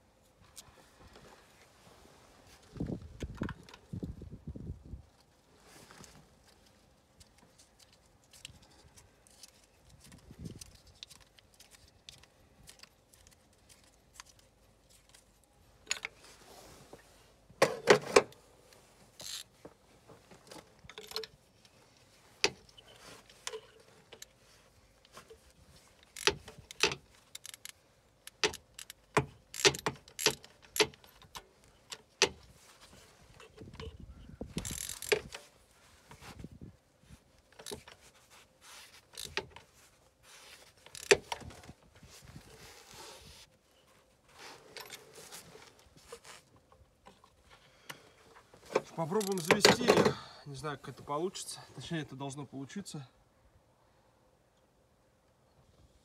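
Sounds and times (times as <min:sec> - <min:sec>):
short rustle: 0:05.2 - 0:17.5, 0:32.4 - 0:49.6
ratchet turning: 0:34.6 - 0:35.2
hand tools clinking on metal: 0:49.0 - 0:50.2.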